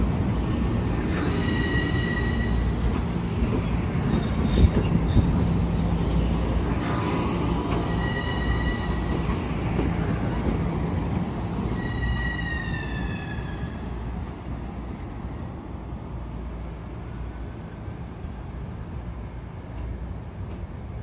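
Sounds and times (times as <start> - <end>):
electric train rumbling on rails: 0.0 - 21.0
train wheels squealing: 1.1 - 2.9, 3.6 - 9.4, 11.0 - 13.9.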